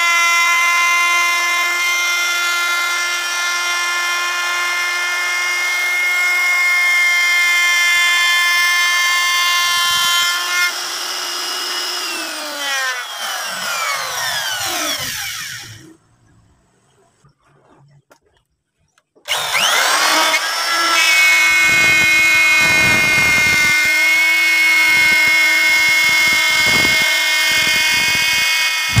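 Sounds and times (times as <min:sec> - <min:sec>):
wood router whining: 0:00.0 - 0:16.0, 0:19.3 - 0:29.0.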